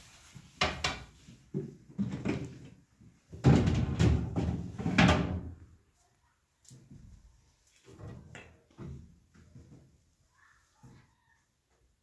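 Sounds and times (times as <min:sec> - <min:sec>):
plastic shelves and containers handled: 0:00.4 - 0:05.8.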